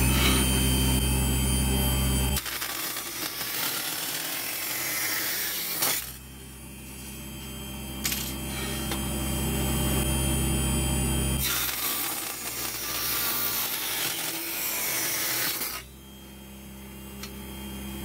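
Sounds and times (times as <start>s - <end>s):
table saw cutting metal: 0.0s - 17.6s
saw humming unloaded: 2.3s - 6.2s, 8.0s - 9.1s, 11.4s - 15.9s.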